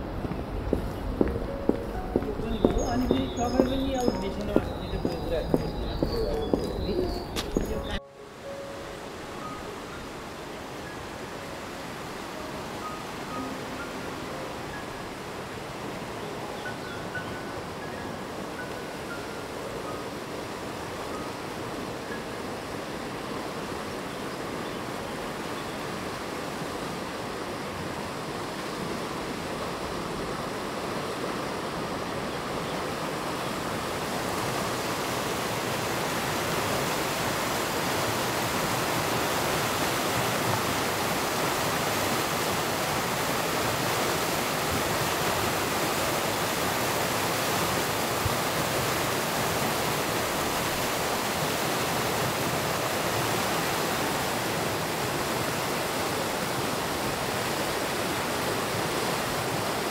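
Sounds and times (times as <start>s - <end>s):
river water rushing: 0.0s - 59.9s.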